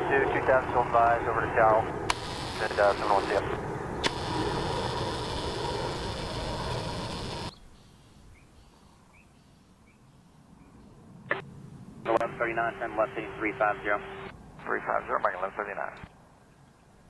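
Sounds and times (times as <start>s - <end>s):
jet airliner passing overhead: 0.0s - 7.5s
bird chirps: 7.5s - 11.0s.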